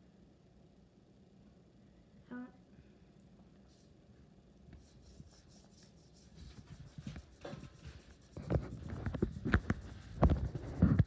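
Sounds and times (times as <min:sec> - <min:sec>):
paintbrush scrubbing on paper: 0:04.8 - 0:11.0.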